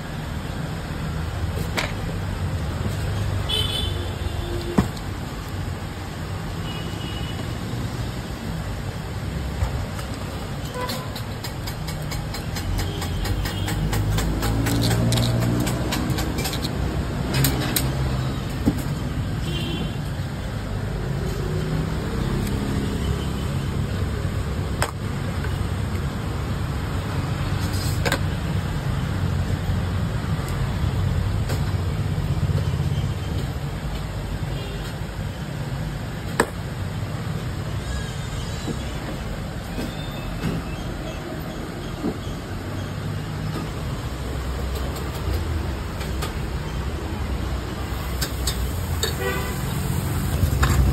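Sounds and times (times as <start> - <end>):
low rumble of street traffic: 0.0 - 50.9
sharp knocks: 11.1 - 16.4.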